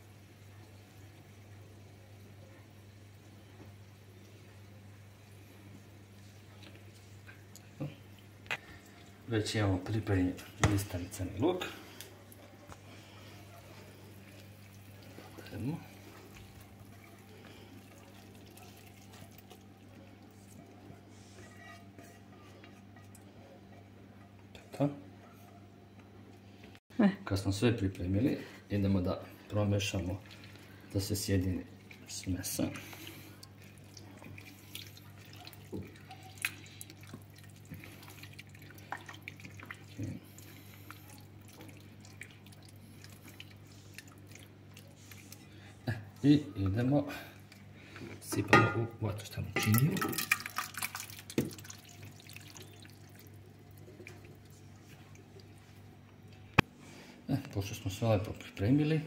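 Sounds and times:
wet squelching of beans: 6.2s - 23.3s, 29.1s - 48.3s, 49.7s - 56.7s
spatula scraping pan: 21.1s - 22.9s.

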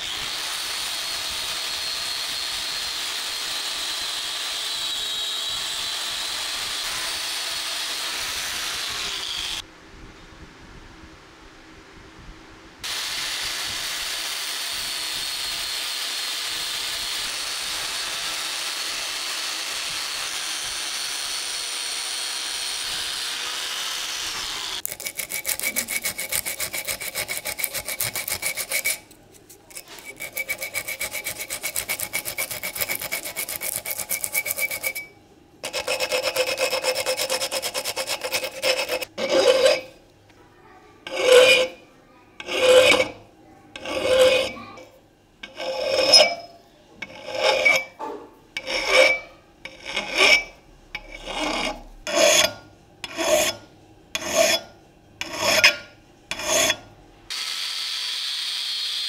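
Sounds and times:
rotary tool sanding steel: 0.0s - 9.6s, 12.8s - 40.0s, 41.1s - 41.8s, 42.4s - 44.8s, 45.4s - 48.0s, 48.6s - 59.0s
hand file strokes on steel: 24.4s - 40.0s, 41.0s - 41.8s, 42.4s - 44.8s, 45.4s - 48.0s, 48.6s - 56.9s.

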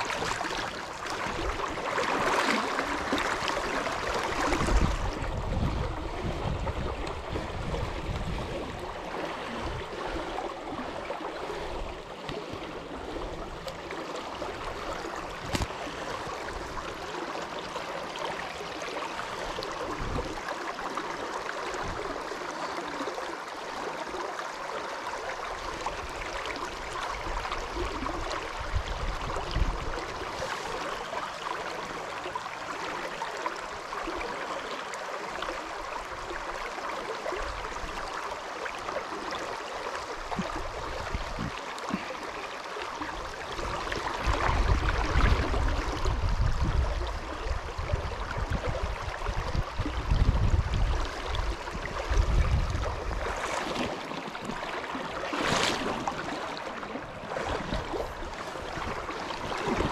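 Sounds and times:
river water over rocks: 0.0s - 59.9s
wind buffeting microphone: 4.3s - 10.0s, 43.6s - 53.4s.

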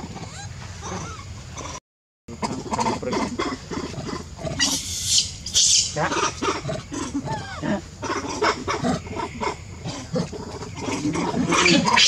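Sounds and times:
macaque grunts and chirps: 0.0s - 12.0s
macaque hissing: 2.4s - 10.1s.

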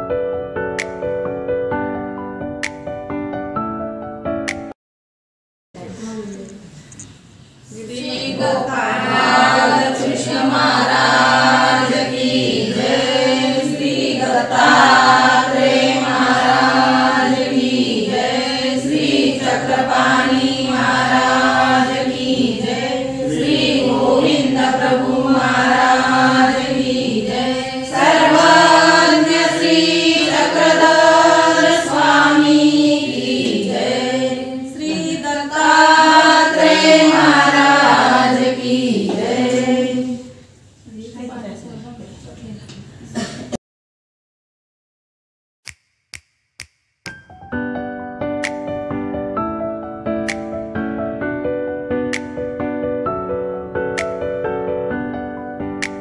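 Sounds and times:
group singing a hymn: 7.7s - 40.4s.

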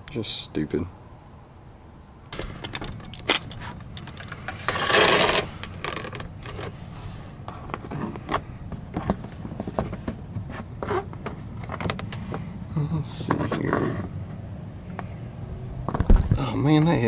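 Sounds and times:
tools clattering and scraping: 2.4s - 6.8s.

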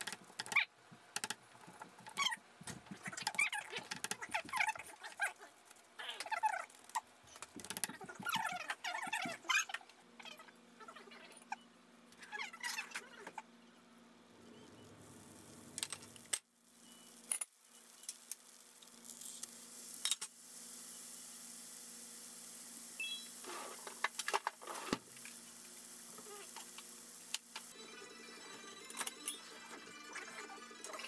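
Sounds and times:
butter and patty sizzling in pan: 15.0s - 27.8s.

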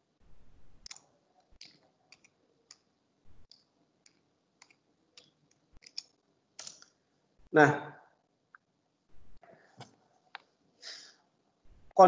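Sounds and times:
soft hiss: 8.5s - 12.0s.

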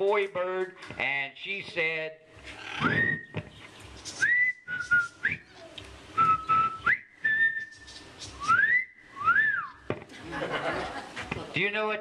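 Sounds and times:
man whistling bird song: 2.8s - 3.4s, 4.2s - 5.6s, 6.2s - 9.8s.

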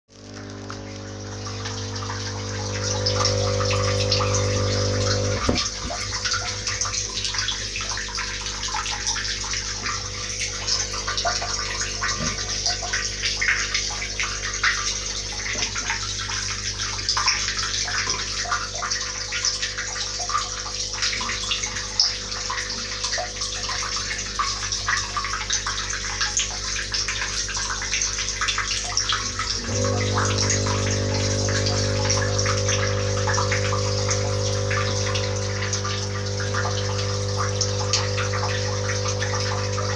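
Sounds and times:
low electric hum: 0.1s - 14.0s, 29.3s - 39.9s
air bubbling in fish tank: 0.1s - 25.2s, 28.6s - 39.9s.

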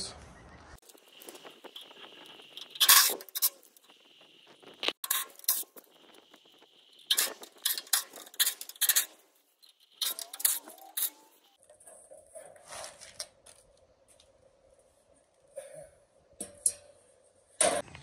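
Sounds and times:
metallic rattling: 0.8s - 12.2s.

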